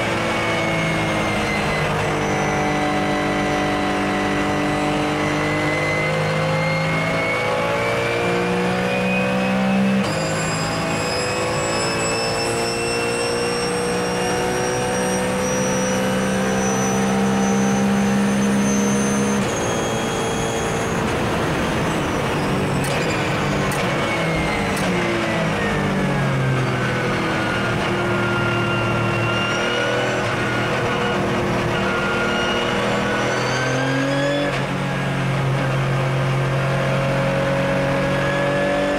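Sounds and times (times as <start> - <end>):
race car engine revving: 0.0 - 38.9.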